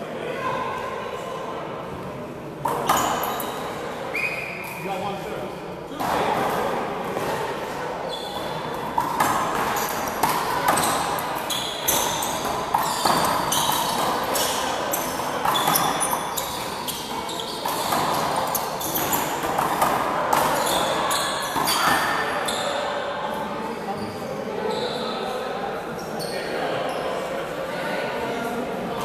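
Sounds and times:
sneakers squeaking on court: 0:02.7 - 0:04.8, 0:08.0 - 0:22.8, 0:24.0 - 0:25.1, 0:26.2 - 0:27.1.

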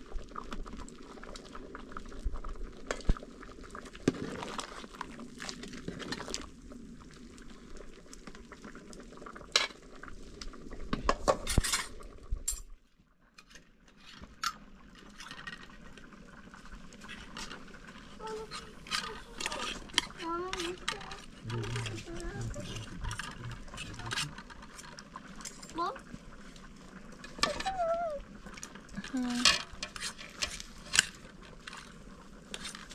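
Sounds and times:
metal utensils clinking and scraping: 0:11.4 - 0:12.7, 0:13.4 - 0:15.7, 0:18.3 - 0:25.8, 0:29.1 - 0:32.9.

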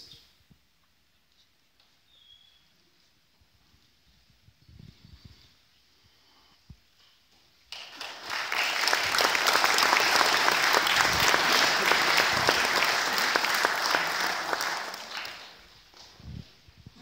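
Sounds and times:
audience applauding: 0:07.7 - 0:16.0.

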